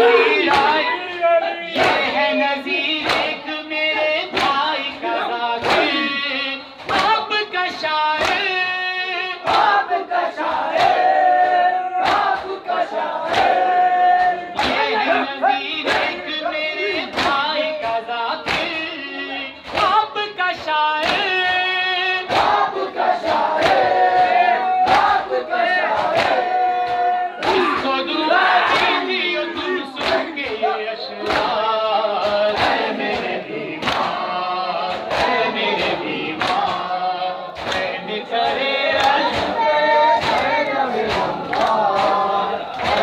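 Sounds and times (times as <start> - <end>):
men chanting in chorus: 0.0 - 43.0
hands slapping chests: 0.5 - 2.2, 3.0 - 3.4, 4.2 - 6.1, 6.8 - 7.2, 8.2 - 8.5, 9.5 - 12.6, 13.2 - 15.3, 16.9 - 18.8, 19.6 - 20.0, 20.6 - 21.6, 22.2 - 28.0, 28.6 - 29.2, 30.0 - 37.0, 37.6 - 43.0.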